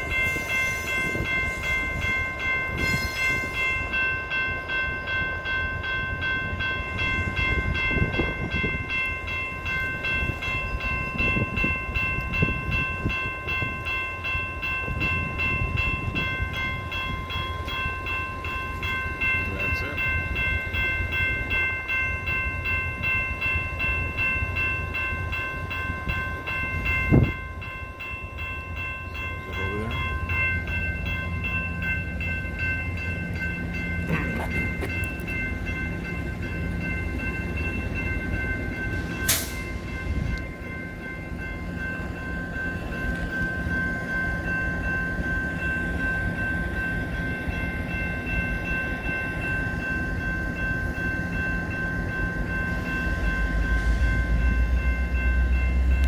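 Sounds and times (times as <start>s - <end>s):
crossing warning bell ringing: 0.0s - 56.0s
diesel locomotive rumble: 0.0s - 56.0s.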